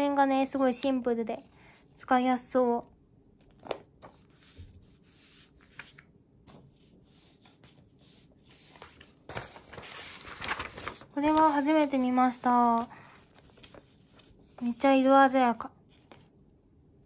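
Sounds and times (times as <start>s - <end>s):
paper sheets rustling and rubbing: 3.6s - 15.1s, 15.9s - 16.3s.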